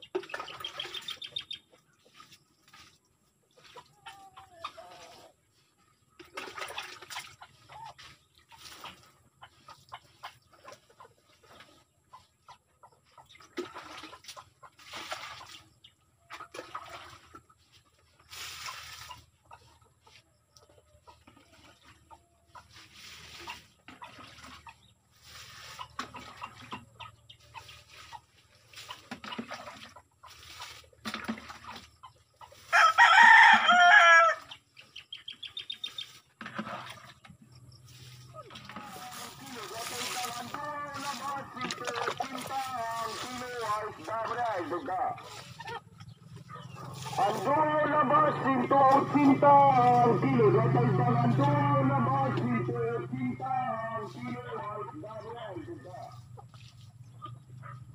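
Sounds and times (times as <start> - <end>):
chickens clucking: 0.0 - 57.9
rooster crowing: 32.7 - 34.4.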